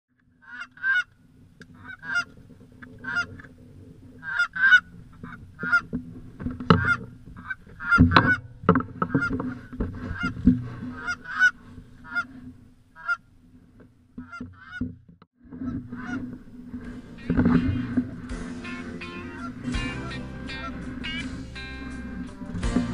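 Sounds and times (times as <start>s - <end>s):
geese honking: 0.4s - 13.3s, 14.2s - 14.9s, 15.5s - 22.9s
steady low hum: 15.7s - 22.9s.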